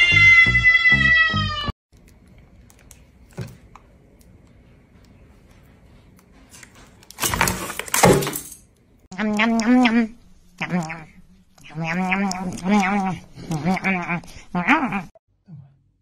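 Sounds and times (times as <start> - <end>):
cat yowling: 0.0 - 1.7.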